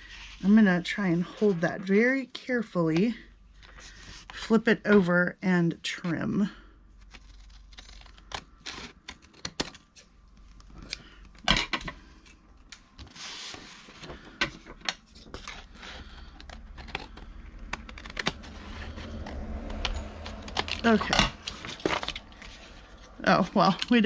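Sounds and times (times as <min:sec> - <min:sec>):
paper rustling: 0:15.0 - 0:24.0.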